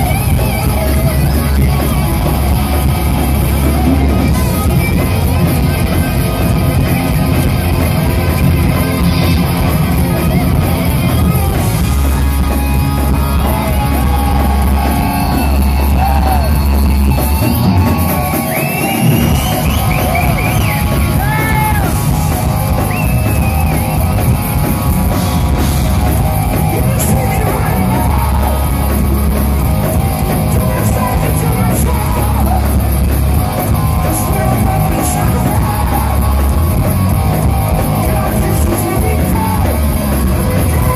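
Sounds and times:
bass guitar: 0.0s - 40.9s
distorted electric guitars: 0.0s - 40.9s
drums: 0.0s - 40.9s
person singing: 26.5s - 29.1s, 30.2s - 40.9s.

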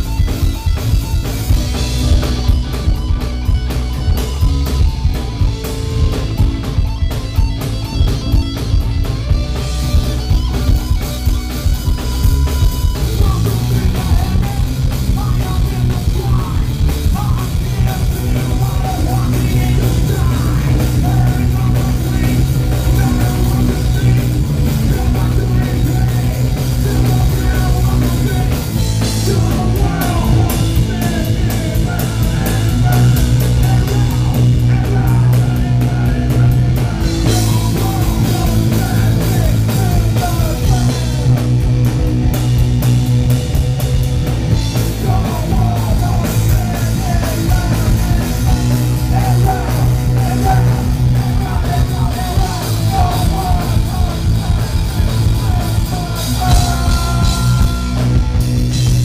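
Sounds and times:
bass guitar: 0.0s - 59.0s
drum kit: 0.0s - 59.0s
person singing: 12.2s - 41.8s, 44.7s - 59.0s.

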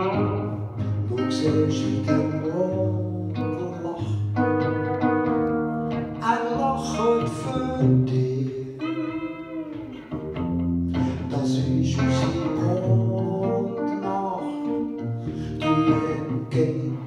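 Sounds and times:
electric guitar: 0.0s - 17.0s
man singing slow song: 0.8s - 4.4s, 6.2s - 9.2s, 11.0s - 17.0s.

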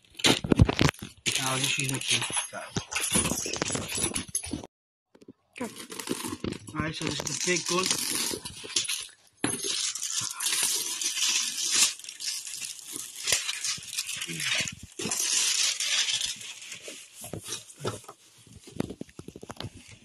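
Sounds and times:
packing sheet rustling: 5.6s - 20.0s.

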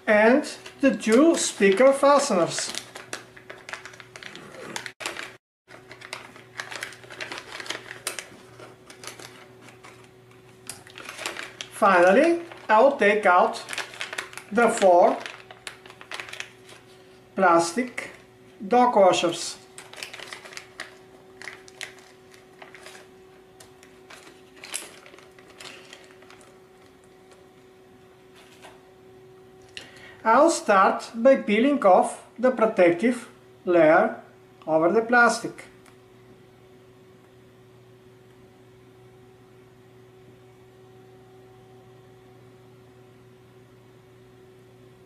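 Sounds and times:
faint steady hum: 0.0s - 45.0s
plastic zip bag crinkling: 0.5s - 18.3s, 19.7s - 27.5s.

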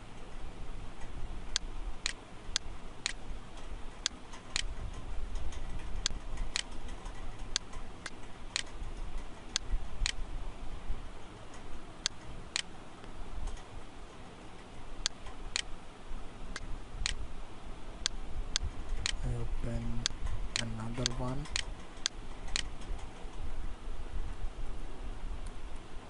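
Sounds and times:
low steady hum: 0.0s - 26.0s
sharp regular ticks: 1.0s - 10.2s, 11.4s - 12.7s, 15.0s - 15.7s, 16.5s - 17.2s, 18.0s - 23.4s.

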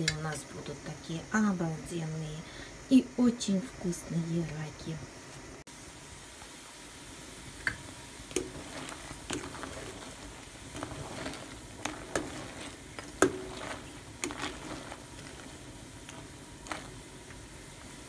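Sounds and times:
pot boiling and bubbling: 0.0s - 18.0s.

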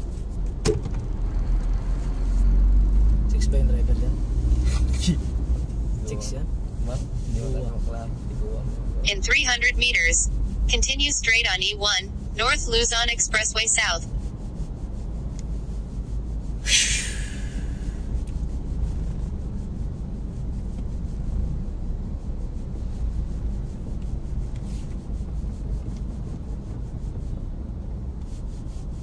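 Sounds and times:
car cabin road rumble: 0.0s - 29.0s
brief hiss: 16.6s - 18.1s.

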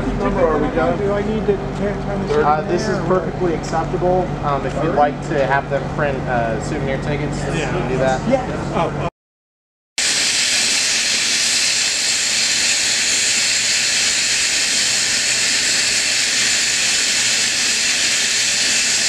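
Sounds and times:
steam locomotive venting steam: 10.0s - 19.0s.

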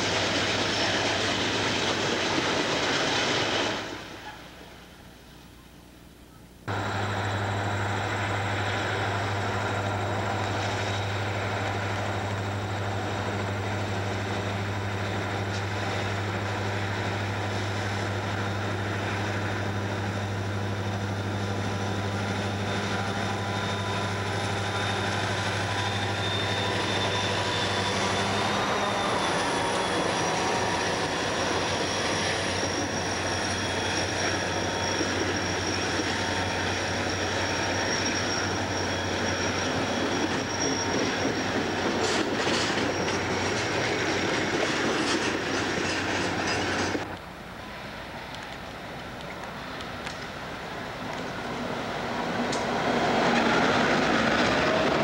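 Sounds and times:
locomotive engine drone: 0.0s - 55.0s
train rumble: 0.0s - 55.0s
thin high whine: 5.4s - 43.7s.

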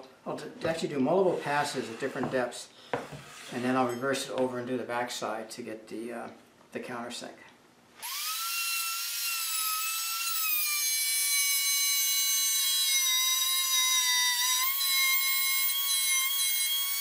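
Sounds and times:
router motor whine cutting wood: 8.0s - 17.0s.

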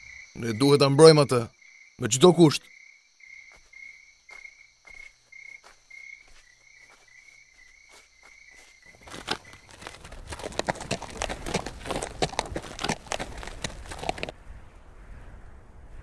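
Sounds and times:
crickets chirping: 0.0s - 14.3s
horse hooves clopping on hard ground: 4.3s - 14.3s.

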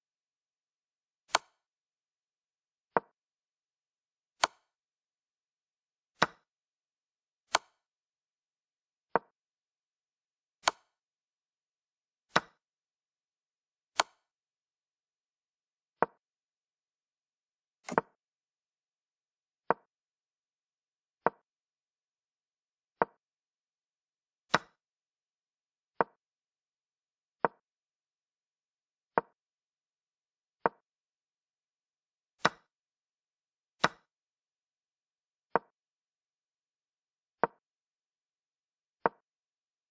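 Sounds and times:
chess piece move clicks: 1.3s - 1.7s, 4.4s - 4.8s, 6.2s - 6.5s, 7.5s - 7.9s, 10.6s - 11.0s, 12.3s - 12.6s, 14.0s - 14.3s, 17.8s - 18.2s, 24.5s - 24.8s, 29.2s - 29.4s, 32.4s - 32.7s, 33.8s - 34.1s, 37.4s - 37.6s, 39.0s - 39.2s.

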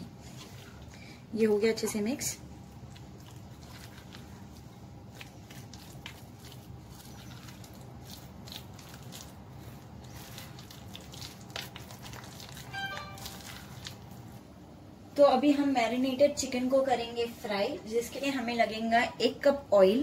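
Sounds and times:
fork stirring chicken squelching: 1.7s - 14.4s.

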